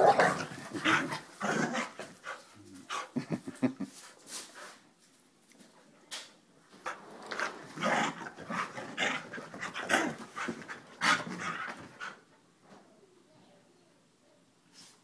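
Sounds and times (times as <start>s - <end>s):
dogs growling: 0.0s - 3.4s, 6.9s - 12.2s
dogs panting: 8.3s - 12.3s.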